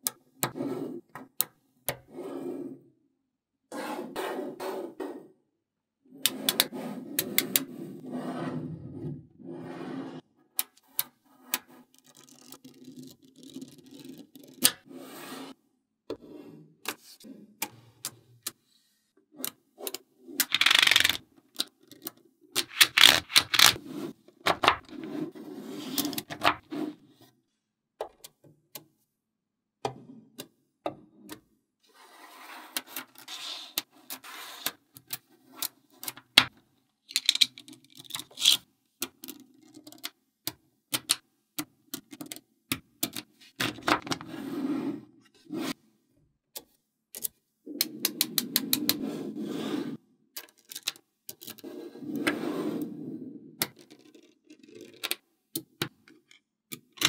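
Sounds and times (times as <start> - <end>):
magnetic balls rubbing and rolling: 20.4 - 21.2, 22.6 - 23.8.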